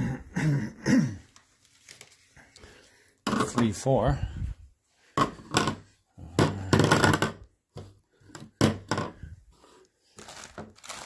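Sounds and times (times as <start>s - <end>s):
plastic pipe fittings clattering: 3.2s - 3.9s, 5.2s - 9.4s.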